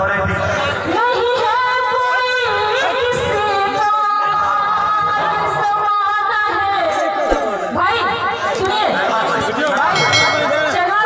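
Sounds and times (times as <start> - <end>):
woman singing into a microphone: 0.8 - 9.0.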